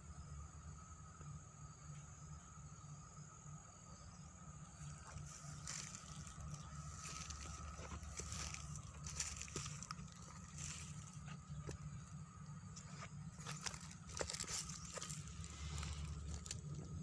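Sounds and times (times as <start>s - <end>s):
high-pitched insect drone: 0.0s - 17.0s
footsteps crunching through dry leaves: 4.8s - 17.0s
low rumble: 4.9s - 17.0s.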